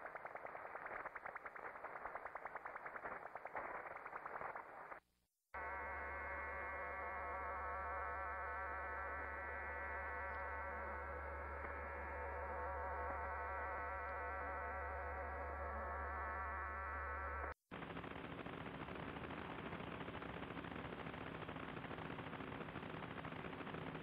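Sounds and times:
multiplex radio tones buzzing: 5.6s - 18.2s
low hum: 5.6s - 24.0s.

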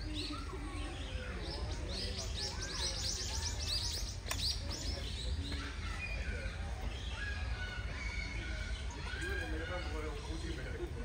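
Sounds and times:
small bird chirping: 0.0s - 7.2s.

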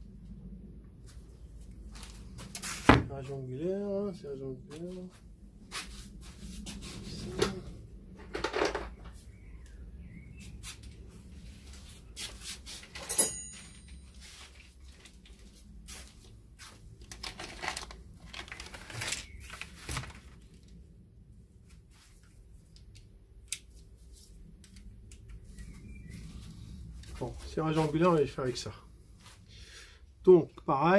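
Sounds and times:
sharp metallic clink: 13.0s - 14.1s.

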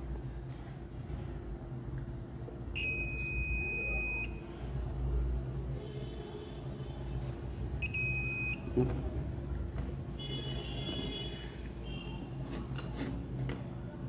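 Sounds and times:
multimeter continuity beep: 2.8s - 4.5s, 7.8s - 8.8s.

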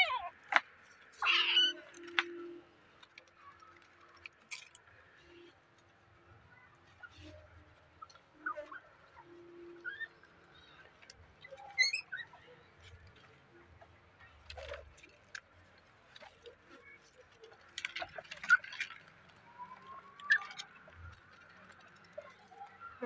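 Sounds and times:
small animals squeaking and chirping: 1.2s - 2.5s, 6.5s - 13.6s, 16.2s - 23.0s.

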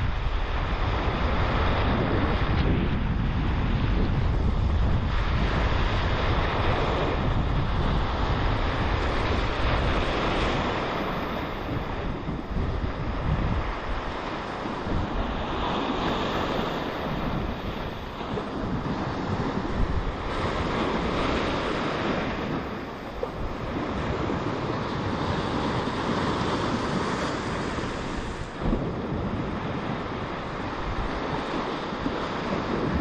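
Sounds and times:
surf washing over rocks: 0.0s - 33.0s
wind buffeting microphone: 0.0s - 33.0s.

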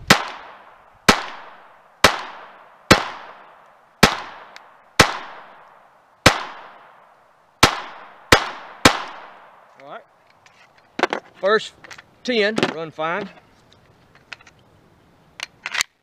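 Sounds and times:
pistol shots with echo: 0.1s - 7.0s, 7.6s - 9.7s.

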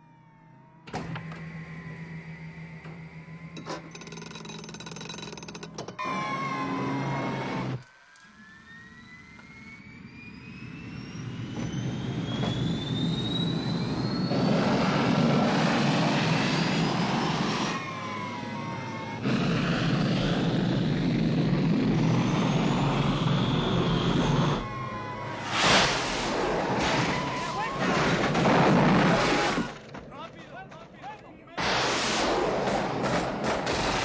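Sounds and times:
rising engine whine: 0.0s - 29.9s
loud rumbling engine: 8.4s - 29.7s.

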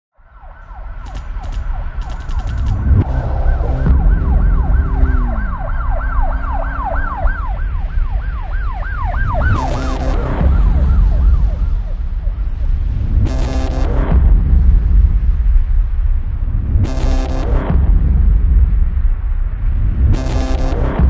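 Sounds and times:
siren wailing: 0.2s - 12.6s
steady low rumble: 0.4s - 21.0s
ticks: 1.0s - 3.1s.

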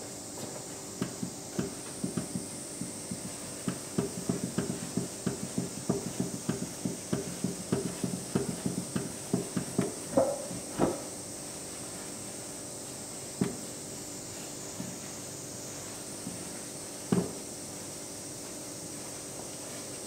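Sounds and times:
tapping on bowl: 3.1s - 11.0s.

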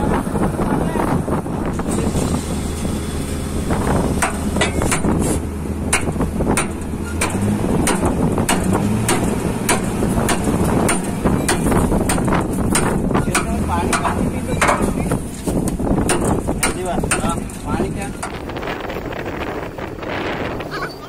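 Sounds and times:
drilling rig engine hum: 0.0s - 21.0s
sharp metal clanks: 4.2s - 15.2s, 16.0s - 18.4s.

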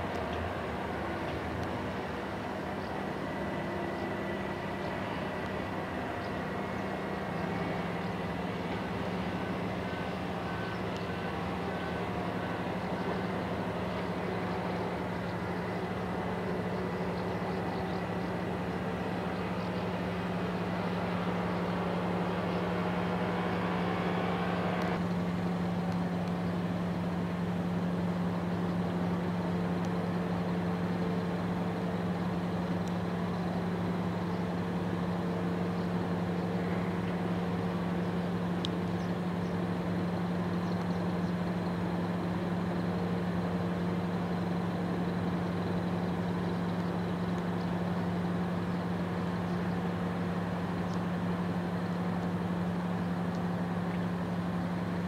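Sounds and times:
paramotor engine droning: 0.0s - 55.0s.

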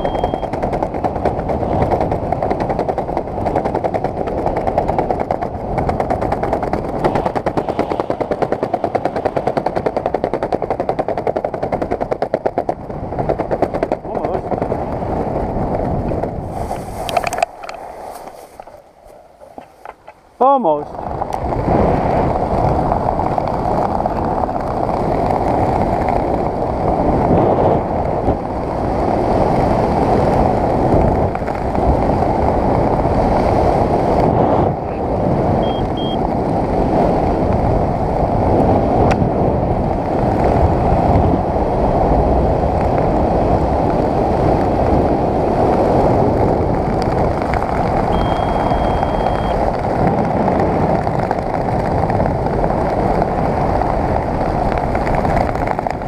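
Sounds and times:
long beep: 0.0s - 0.5s, 35.6s - 36.2s, 48.1s - 49.6s
short high beeps: 0.0s - 0.5s, 35.6s - 36.2s, 48.2s - 49.6s
wind rushing over microphone: 0.0s - 56.0s.

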